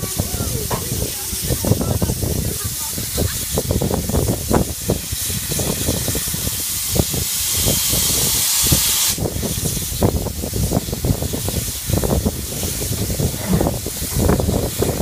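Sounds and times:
steam hissing from locomotive: 0:00.0 - 0:15.0
low thumps: 0:12.1 - 0:15.0.

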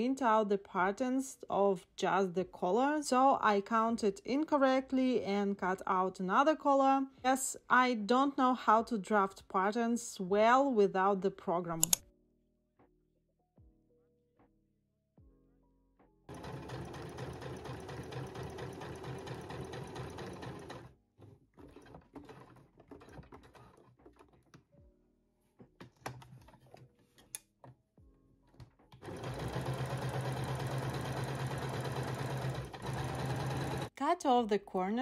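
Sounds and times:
fabric handling clicks: 0:11.8 - 0:12.0
sewing machine stitching: 0:16.3 - 0:20.9, 0:21.6 - 0:24.5, 0:29.0 - 0:33.9.

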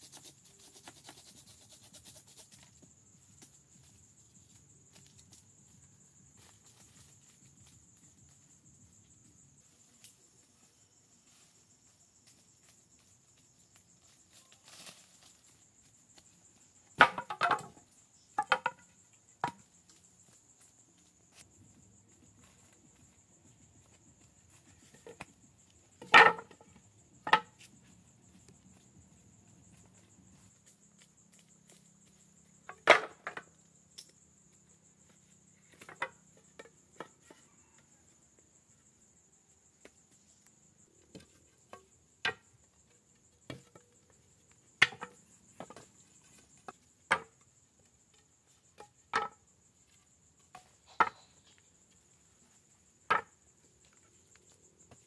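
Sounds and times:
wood being chopped: 0:17.0 - 0:17.8.

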